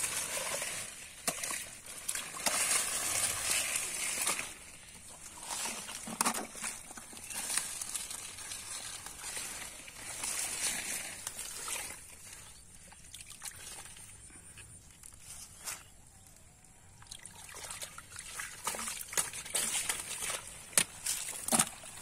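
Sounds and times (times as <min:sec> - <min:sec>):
leaves rustling: 0:00.0 - 0:12.6
hands sloshing in muddy water: 0:00.0 - 0:14.6, 0:17.0 - 0:22.0.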